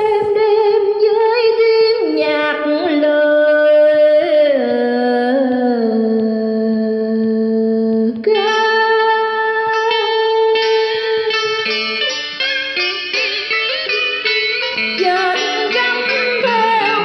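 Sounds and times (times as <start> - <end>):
woman singing folk song: 0.0 - 12.3, 14.6 - 17.0
backing track music: 9.6 - 17.0.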